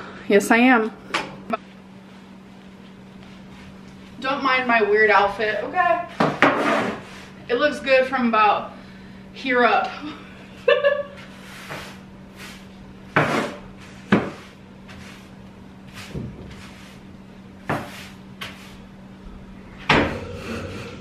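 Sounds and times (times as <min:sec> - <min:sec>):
faint steady hum: 0:00.0 - 0:21.0
broom knocking against walls: 0:13.1 - 0:14.5, 0:16.0 - 0:16.9, 0:17.6 - 0:18.6
broom swishing: 0:13.8 - 0:17.1, 0:17.7 - 0:18.8.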